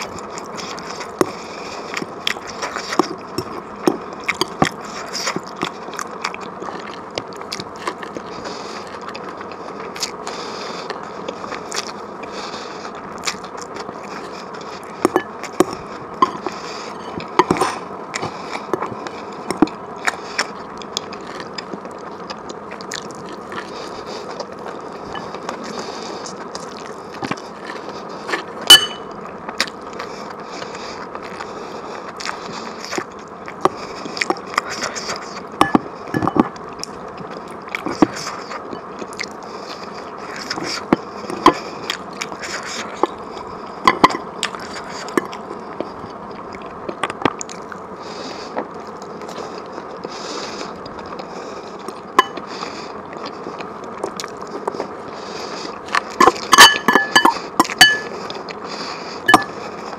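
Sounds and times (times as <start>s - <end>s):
person chewing: 0.0s - 59.9s
steady hiss: 0.0s - 59.9s
cutlery clinking on plate: 28.7s - 29.1s, 56.2s - 58.1s.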